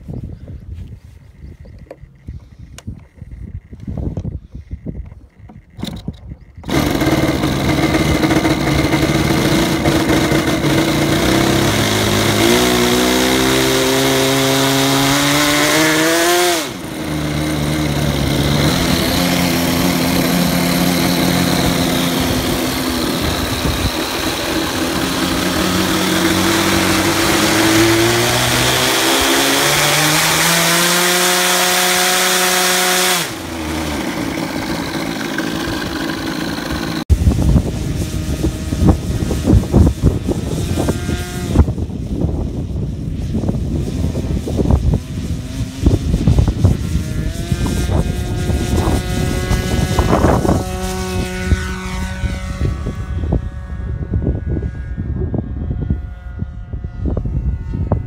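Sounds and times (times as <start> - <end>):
model airplane engine revving: 5.0 - 42.4, 43.5 - 58.0.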